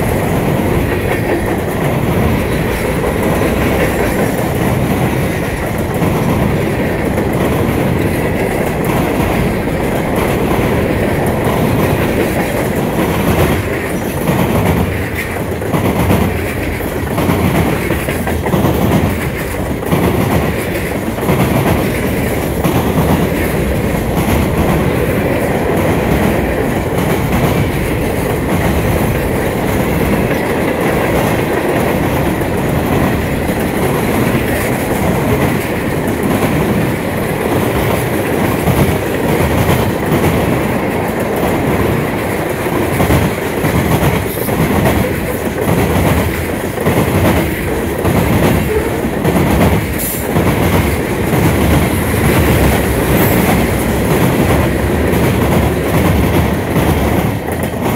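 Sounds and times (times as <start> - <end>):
steel wheels rumbling on rail: 0.0 - 57.9
wheels clacking on rail joints: 0.0 - 57.9.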